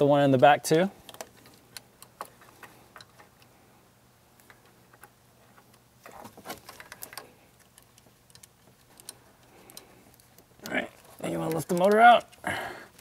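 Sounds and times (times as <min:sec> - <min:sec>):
allen wrench clicking on screws: 0:06.7 - 0:13.0.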